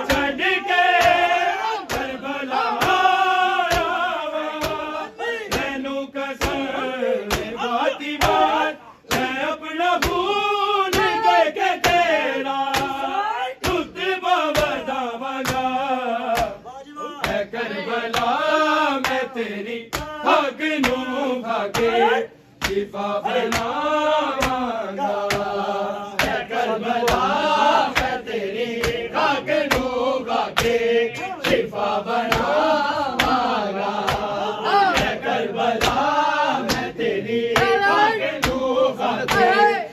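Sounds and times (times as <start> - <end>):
hands beating on chests: 0.0 - 5.8, 6.4 - 9.4, 10.0 - 14.8, 15.4 - 16.6, 33.2 - 35.2
men chanting a lament: 0.0 - 39.9.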